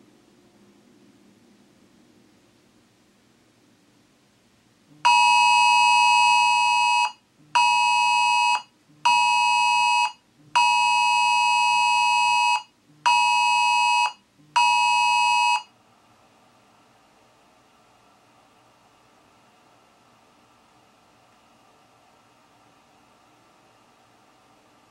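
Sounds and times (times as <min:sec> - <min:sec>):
two-tone emergency alert alarm: 0:05.0 - 0:15.7.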